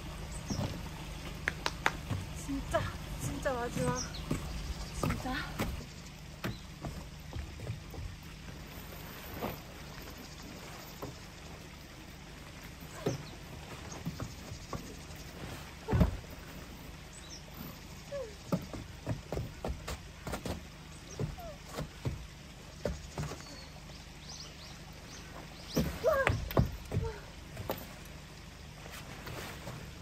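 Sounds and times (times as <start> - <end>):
tent fabric rustling: 8.4 - 11.3, 15.0 - 16.9, 28.7 - 30.0
tent poles knocking: 25.7 - 28.0.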